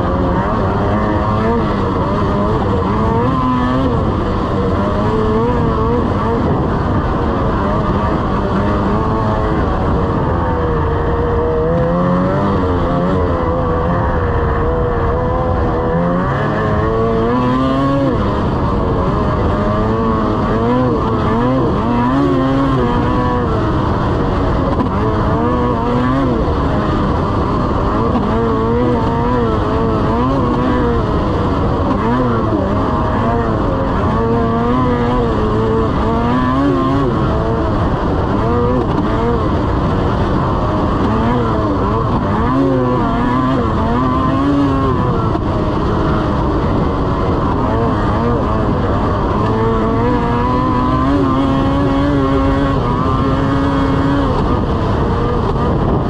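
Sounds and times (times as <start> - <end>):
snowmobile engine running: 0.0 - 56.0.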